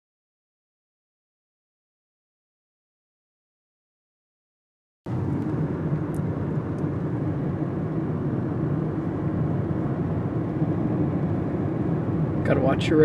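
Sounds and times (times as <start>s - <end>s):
car road and engine noise: 5.1s - 13.0s.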